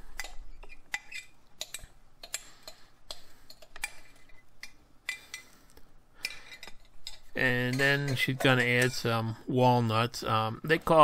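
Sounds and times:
bowls clinking and knocking: 6.2 - 9.2.

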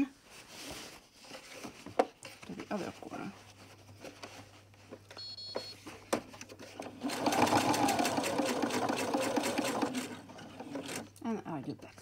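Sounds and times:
sewing machine stitching: 6.8 - 11.1.

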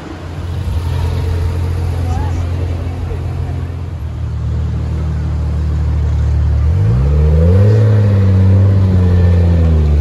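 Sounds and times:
car engine accelerating: 0.2 - 10.0.

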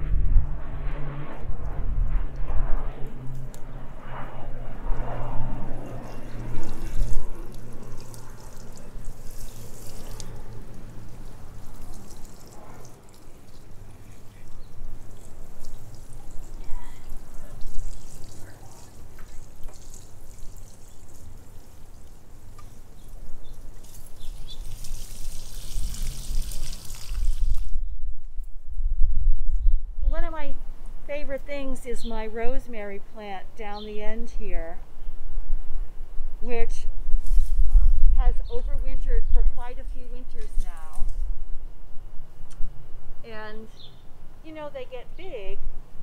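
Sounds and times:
watering can sprinkling water: 6.0 - 27.7.

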